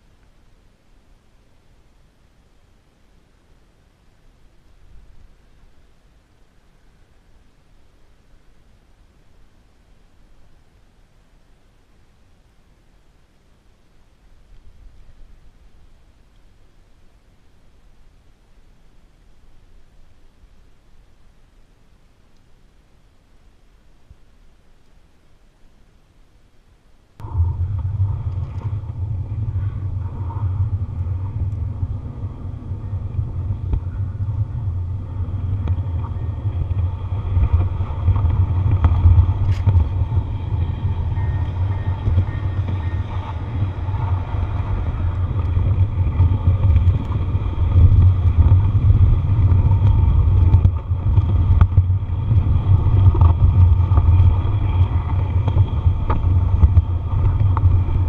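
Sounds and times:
faint steady whine: 0.0s - 58.0s
click: 22.3s - 22.5s.

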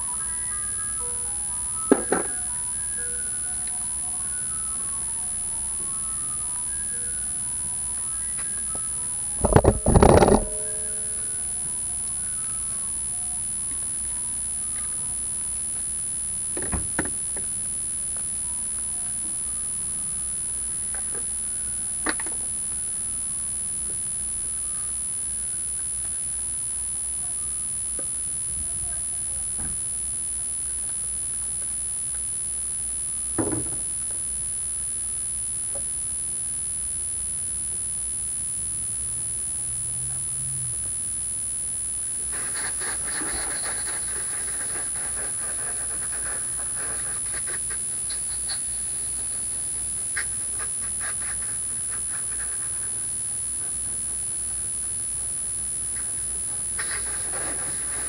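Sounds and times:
steady high-pitched whine: 0.0s - 58.0s
thump: 16.6s - 17.1s, 33.4s - 33.8s.

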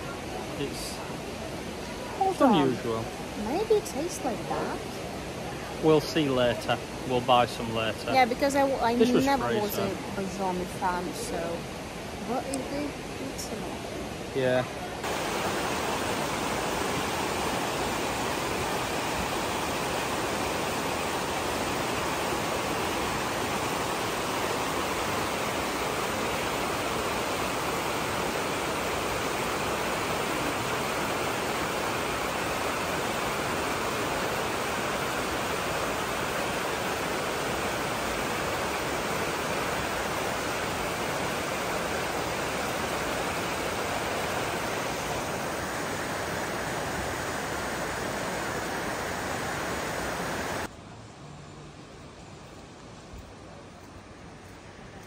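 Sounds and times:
river rushing: 0.0s - 55.0s.

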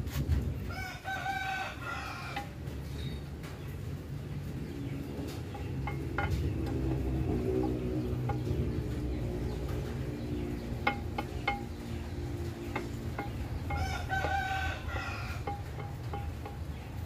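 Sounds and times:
rooster crowing: 0.7s - 2.6s, 13.2s - 16.2s
steady low hum: 1.7s - 17.0s.

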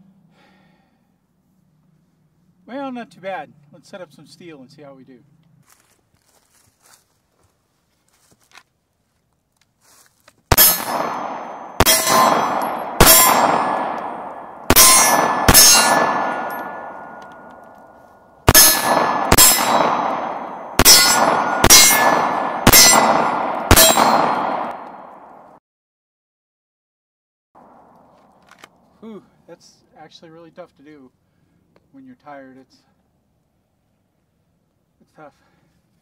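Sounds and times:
steel plate ringing: 10.5s - 17.6s, 18.5s - 24.8s
pistol shots: 10.5s - 25.5s.

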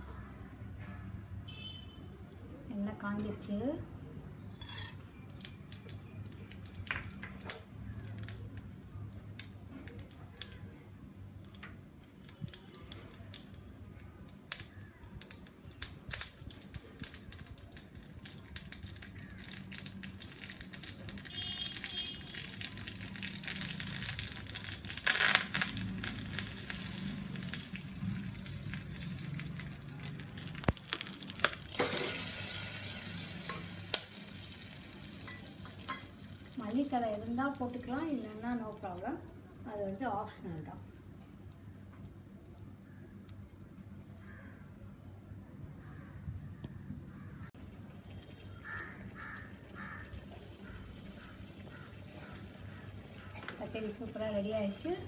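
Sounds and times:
seeds sizzling in hot oil: 14.5s - 40.3s, 47.6s - 55.0s.

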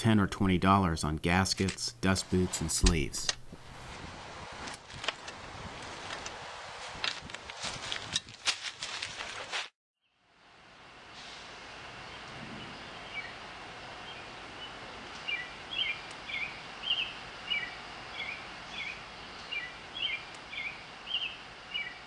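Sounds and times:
steady background hiss: 0.1s - 4.0s.

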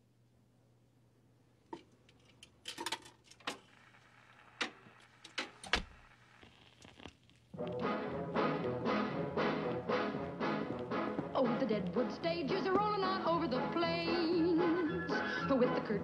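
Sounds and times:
record handling clicks and knocks: 4.6s - 5.9s
music from record: 7.6s - 16.0s.

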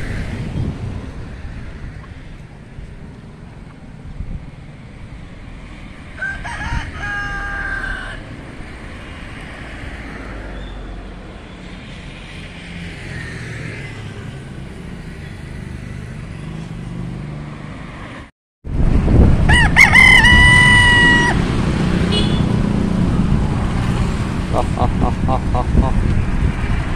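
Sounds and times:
rooster crowing: 6.1s - 8.3s, 19.5s - 21.4s.

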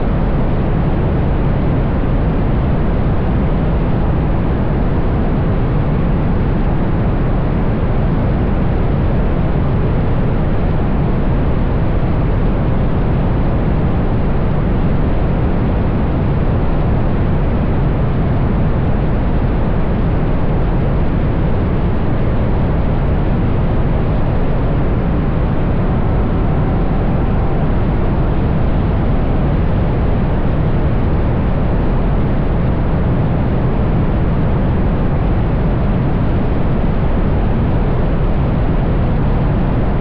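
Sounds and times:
wind buffeting microphone: 11.4s - 40.0s.

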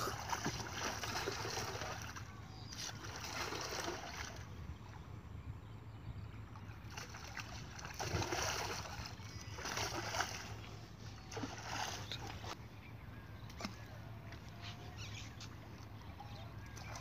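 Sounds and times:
bamboo pole splashing pond water: 2.8s - 4.4s, 6.9s - 10.5s.

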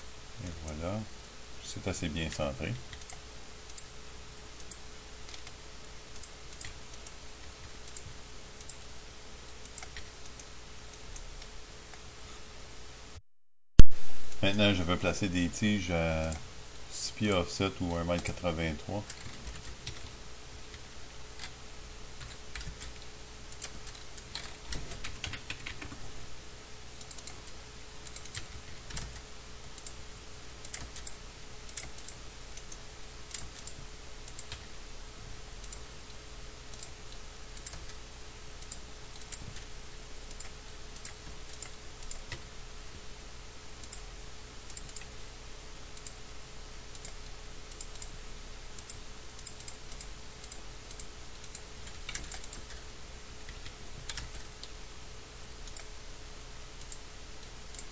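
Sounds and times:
faint steady hum: 0.0s - 13.2s, 13.8s - 57.9s
keyboard and mouse clicking: 2.2s - 3.9s, 4.6s - 8.8s, 9.6s - 11.5s, 19.0s - 20.8s, 22.2s - 26.0s, 27.0s - 30.0s, 30.6s - 34.6s, 36.7s - 38.0s, 38.6s - 39.7s, 40.3s - 42.5s, 44.7s - 45.1s, 46.9s - 48.2s, 48.8s - 52.8s, 53.4s - 54.7s, 55.6s - 55.9s.

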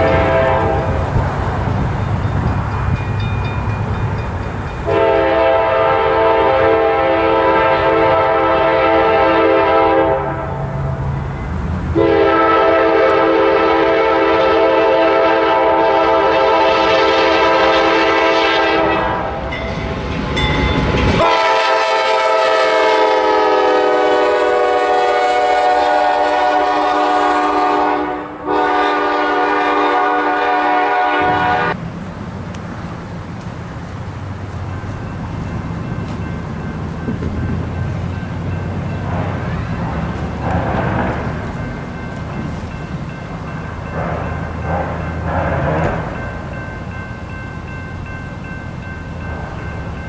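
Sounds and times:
locomotive air horn blasts: 0.0s - 1.1s, 4.8s - 11.0s, 11.9s - 19.4s, 21.1s - 31.8s, 44.8s - 46.2s
train rumble: 0.0s - 50.0s.

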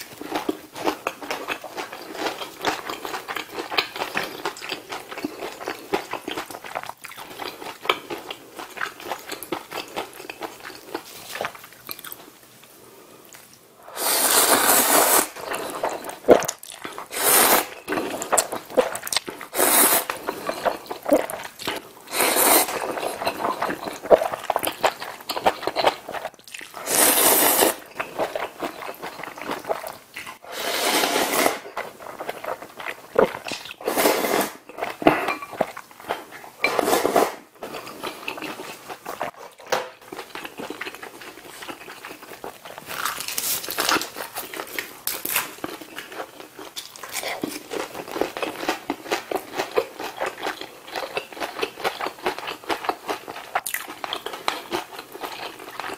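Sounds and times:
slurping noodles: 13.8s - 21.5s, 22.1s - 24.7s, 26.8s - 29.0s, 29.8s - 35.3s, 36.6s - 39.3s.

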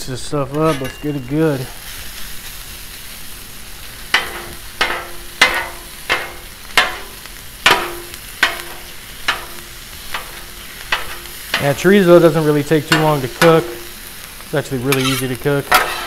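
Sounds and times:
meat sizzling: 0.0s - 16.0s
metal spatula clanking on griddle: 0.5s - 1.4s, 4.1s - 11.8s, 12.8s - 13.9s, 14.9s - 16.0s.

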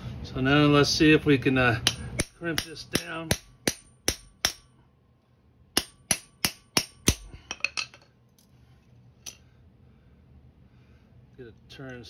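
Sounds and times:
hammer striking crimping tool: 1.8s - 4.7s, 5.8s - 7.3s.

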